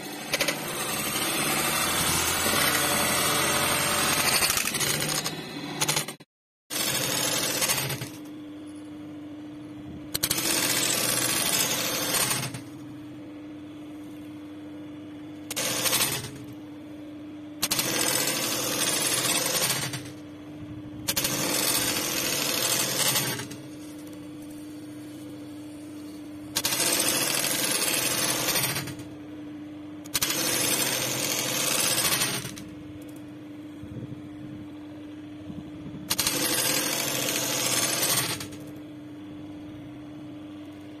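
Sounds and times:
sewing machine stitching rapidly: 0.0s - 8.2s, 10.2s - 12.6s, 15.5s - 16.4s, 17.6s - 20.1s, 21.1s - 23.6s, 26.6s - 29.0s, 30.1s - 32.6s, 36.1s - 38.6s
steady machine hum: 0.0s - 41.0s.

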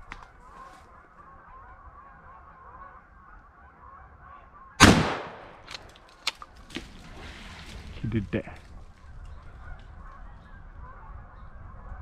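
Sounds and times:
loud gunshot: 4.8s - 5.5s.

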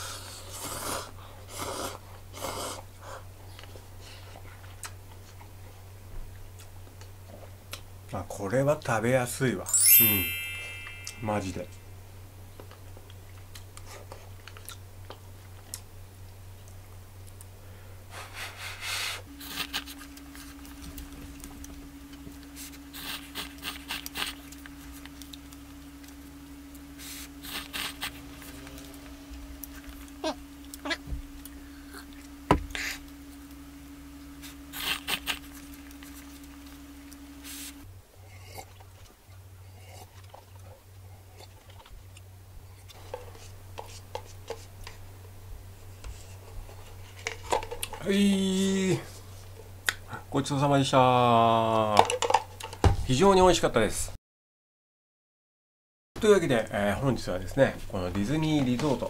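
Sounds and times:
person slurping noodles: 0.0s - 3.2s
steady low hum: 0.0s - 48.0s
chewing: 0.2s - 5.5s, 12.6s - 15.8s, 19.4s - 26.2s, 38.3s - 42.3s.

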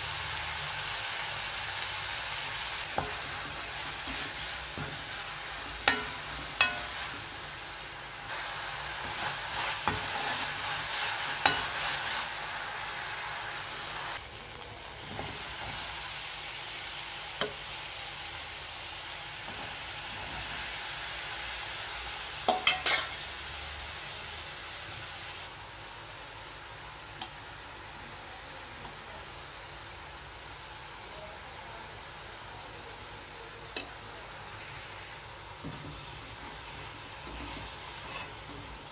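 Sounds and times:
food sizzling in oil: 0.0s - 38.9s
metal spoon clinking on pan: 5.8s - 7.1s, 11.4s - 11.7s, 22.5s - 23.2s.

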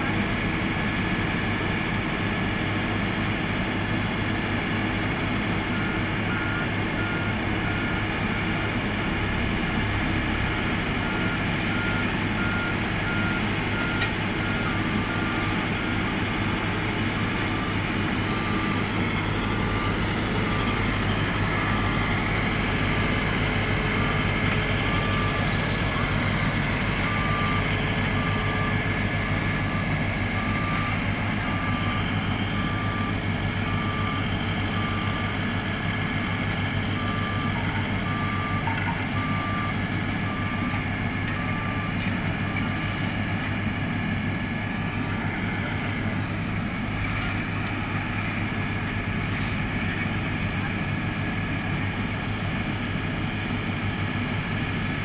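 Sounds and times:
diesel engines running: 0.0s - 55.0s
backup warning beeper: 11.0s - 35.5s.

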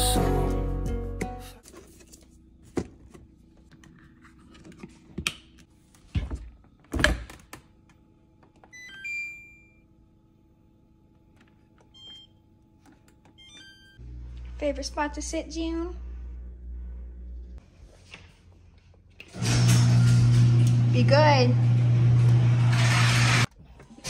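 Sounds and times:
steady low hum: 9.8s - 17.9s.

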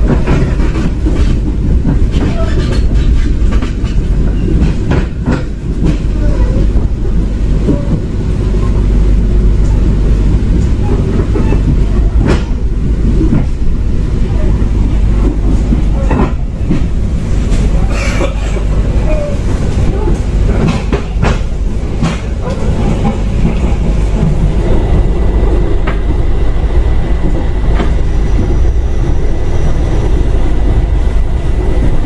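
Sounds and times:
wheels clacking over rail joints: 0.0s - 8.8s, 9.5s - 26.1s
train rumble inside carriage: 0.0s - 32.0s.

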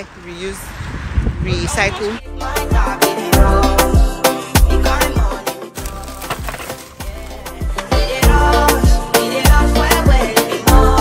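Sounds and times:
background music: 2.2s - 11.0s.

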